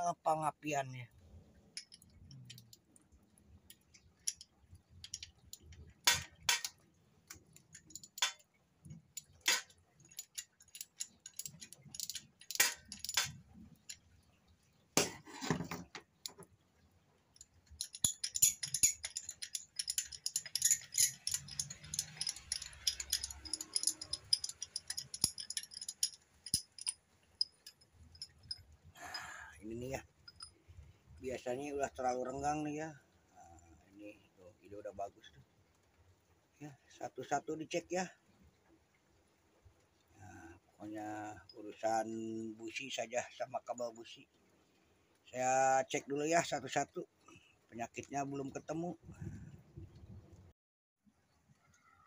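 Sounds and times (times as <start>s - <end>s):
metal hand tools clinking: 1.7s - 2.8s, 3.7s - 6.8s, 7.4s - 8.5s, 9.2s - 14.0s, 17.4s - 30.6s
rapid ratchet wrench clicking: 17.8s - 28.3s.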